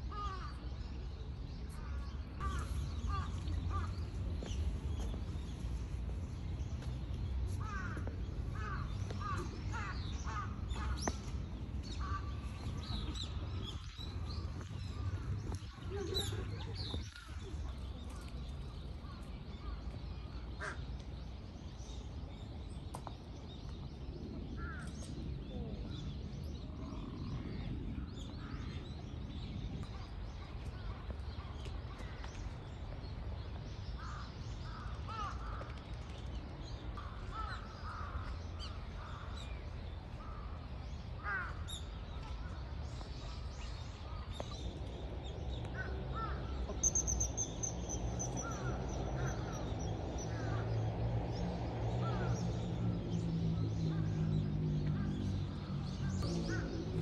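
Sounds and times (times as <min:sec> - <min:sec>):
crows cawing: 0:07.6 - 0:11.0, 0:20.6 - 0:20.8.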